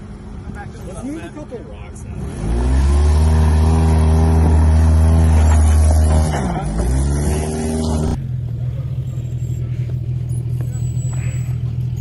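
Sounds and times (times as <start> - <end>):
car engine revving hard: 2.2 - 8.2.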